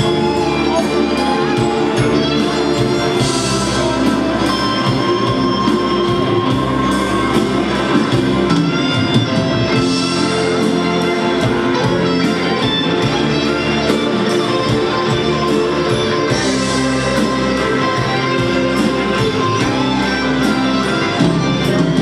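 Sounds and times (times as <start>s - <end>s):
drum kit beat: 0.0s - 22.0s
electric guitar: 0.0s - 22.0s
rock band and wind band playing: 0.0s - 22.0s.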